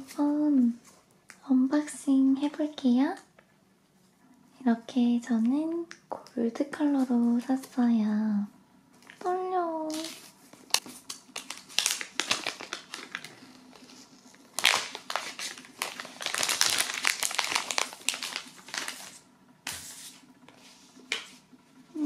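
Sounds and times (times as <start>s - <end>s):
plastic wrapping crinkling: 9.9s - 19.2s.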